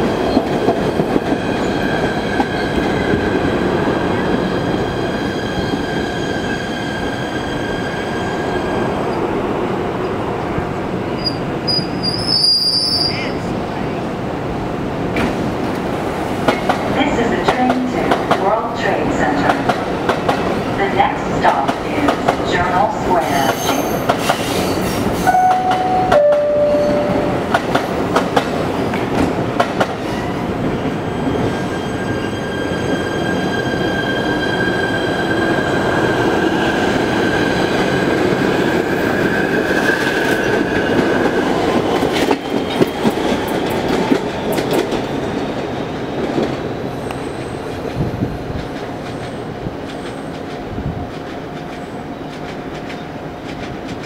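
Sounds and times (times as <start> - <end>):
two-note door chime: 25.3 - 27.3.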